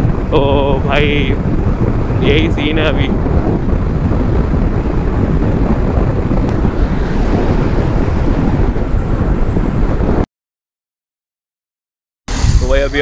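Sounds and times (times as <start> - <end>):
wind rushing over microphone: 0.0 - 10.3, 12.3 - 13.0.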